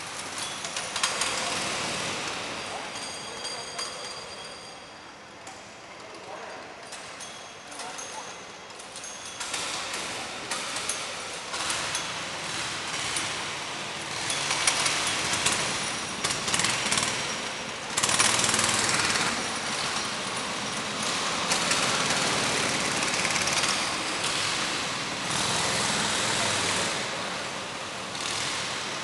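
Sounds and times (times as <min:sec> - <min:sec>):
go-kart engines running: 0:00.0 - 0:07.2, 0:08.5 - 0:29.0.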